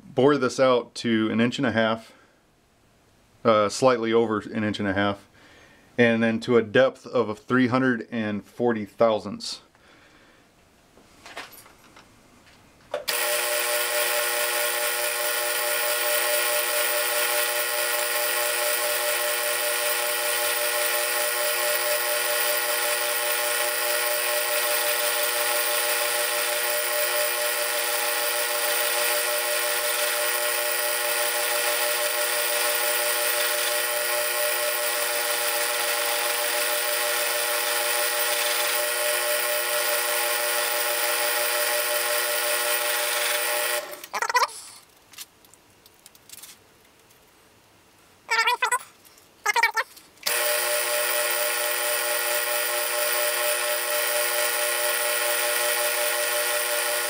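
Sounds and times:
lathe cutting metal with ringing whine: 0:13.1 - 0:43.8.

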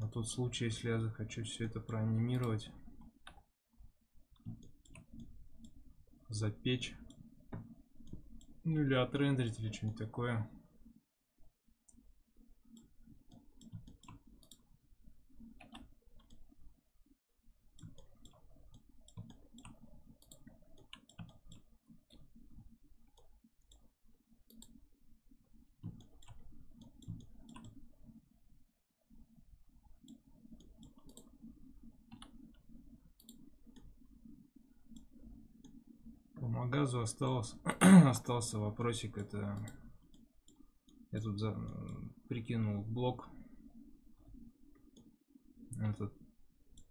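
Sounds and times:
computer mouse clicks: 0:01.6 - 0:03.5, 0:04.3 - 0:05.9, 0:06.8 - 0:08.6, 0:12.7 - 0:14.8, 0:15.4 - 0:16.6, 0:17.8 - 0:23.9, 0:24.5 - 0:24.8, 0:25.8 - 0:28.2, 0:29.8 - 0:35.9, 0:38.8 - 0:42.1, 0:43.6 - 0:46.1, 0:46.7 - 0:46.9.

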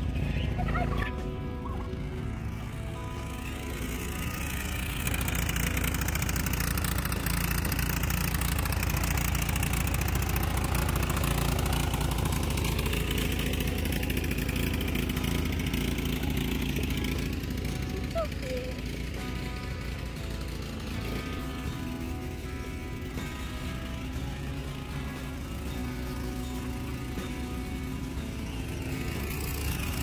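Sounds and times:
lawn tractor engine running: 0:00.0 - 0:30.0.

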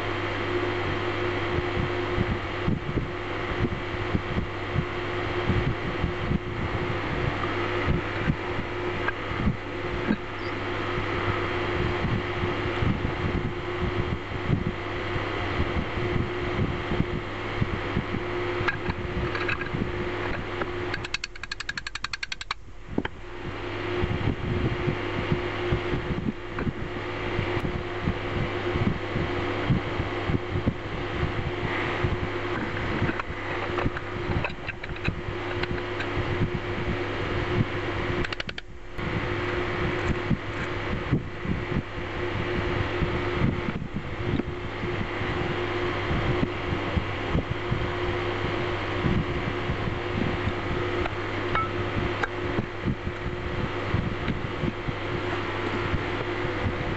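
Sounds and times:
mechanical hum: 0:00.0 - 0:56.9
metal parts clicking and knocking: 0:18.7 - 0:19.7, 0:20.9 - 0:22.6.

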